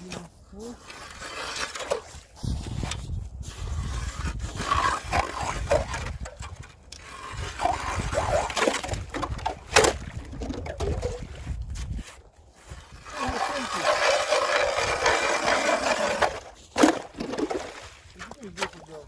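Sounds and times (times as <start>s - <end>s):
squeaky creaks and scraping: 0.1s - 9.6s
ice auger grinding through ice: 0.1s - 18.8s
sharp ice crunch: 12.6s - 18.7s.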